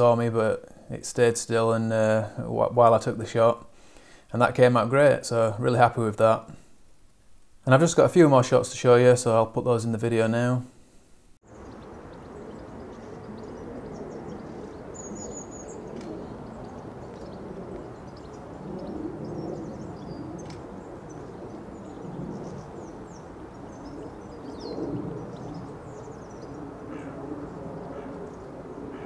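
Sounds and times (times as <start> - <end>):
small birds chirping: 11.4 - 29.0
steady low rumble: 11.5 - 29.0.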